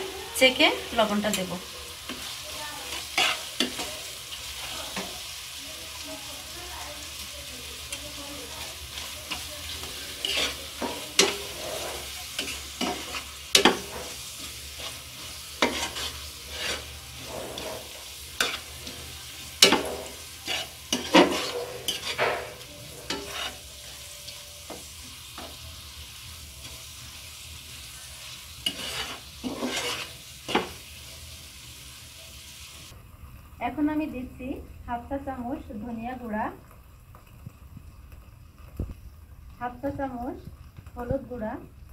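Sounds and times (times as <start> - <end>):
spatula scraping a wok: 0.0 - 32.8
oil sizzling: 0.0 - 41.9.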